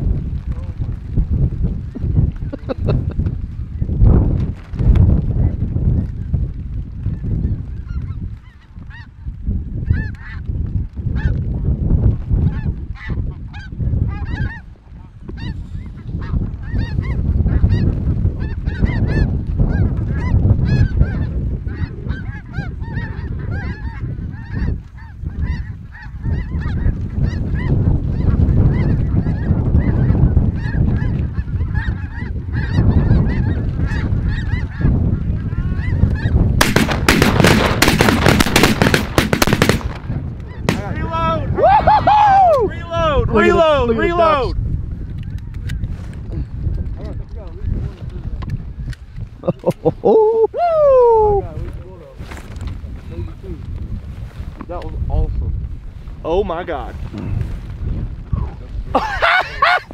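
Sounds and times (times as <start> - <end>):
flock of geese honking: 7.0 - 9.2, 9.8 - 10.5, 11.1 - 11.4, 12.4 - 39.8.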